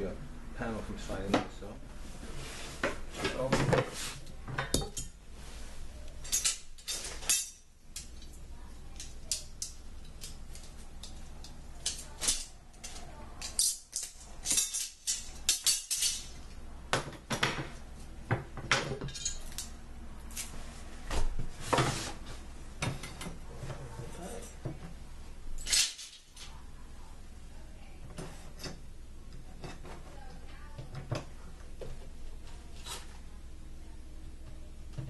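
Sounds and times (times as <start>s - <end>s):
metal hardware clinking: 6.2s - 16.4s, 19.0s - 19.7s.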